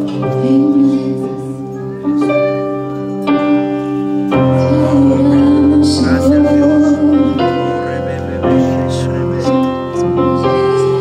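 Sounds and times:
slow piano chords: 0:00.0 - 0:11.0.

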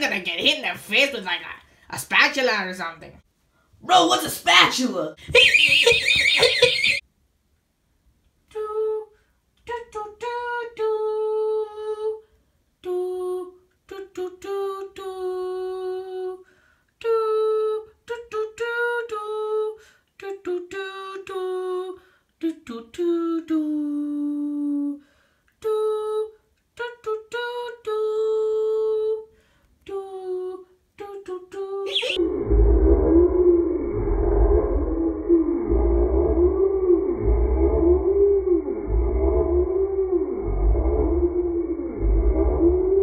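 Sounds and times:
person humming a tune: 0:31.9 - 0:43.0.

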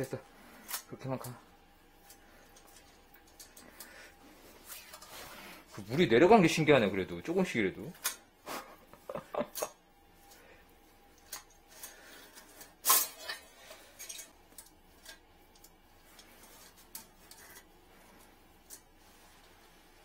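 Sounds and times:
small clicks and rubbing of tools: 0:02.0 - 0:05.8, 0:09.6 - 0:20.0.

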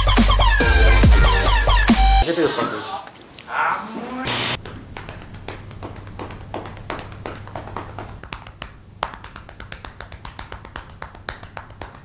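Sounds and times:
sharp percussive clicks and taps: 0:05.0 - 0:12.0.

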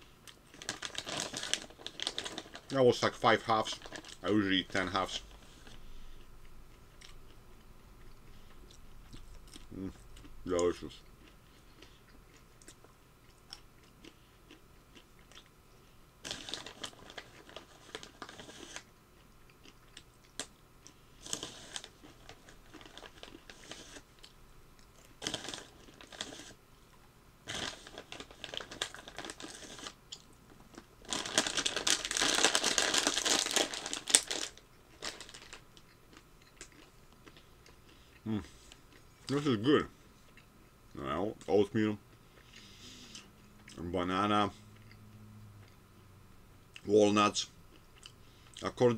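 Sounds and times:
plastic bag crinkling: 0:00.5 - 0:05.8, 0:16.2 - 0:18.8, 0:21.2 - 0:24.0, 0:25.2 - 0:26.6, 0:27.4 - 0:35.7
person chewing nuts: 0:05.2 - 0:15.6, 0:16.2 - 0:41.5, 0:42.1 - 0:43.9, 0:44.7 - 0:46.0, 0:47.7 - 0:48.7.

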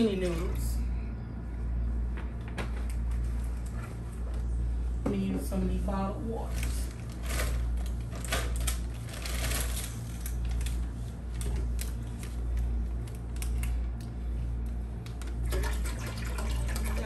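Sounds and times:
low pulsing hum: 0:00.0 - 0:17.0
plastic bottles clicking and crackling: 0:06.9 - 0:12.2.

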